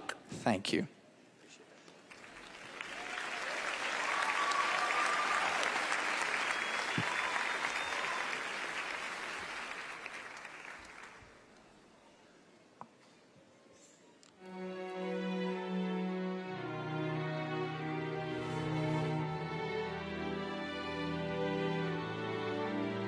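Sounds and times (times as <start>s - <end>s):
audience applauding: 2.1s - 11.6s.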